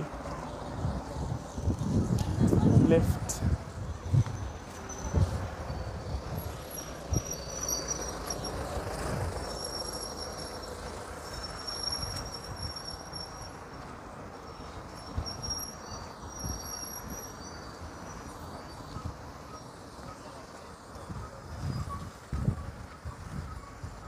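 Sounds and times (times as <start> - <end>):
roadside traffic: 0.0 - 24.0
high-pitched shrill: 4.4 - 13.8.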